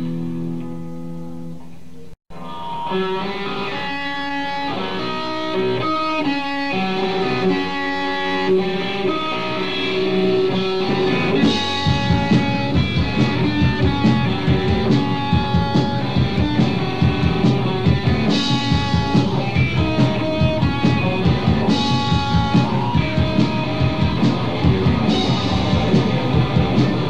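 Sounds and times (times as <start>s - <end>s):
electric guitar melody: 0.0s - 27.0s
rock band playing: 2.3s - 27.0s
drums steady beat: 10.0s - 27.0s.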